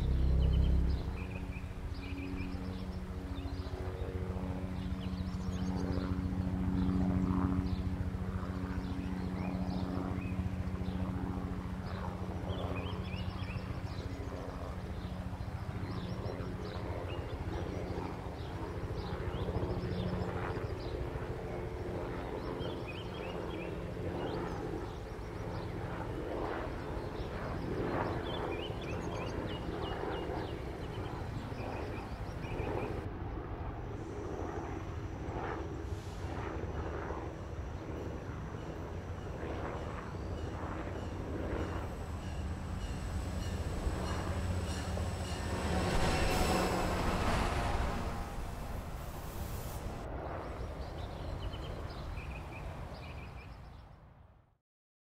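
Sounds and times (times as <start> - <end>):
drone propellers humming: 0.0 - 16.8, 36.8 - 50.5.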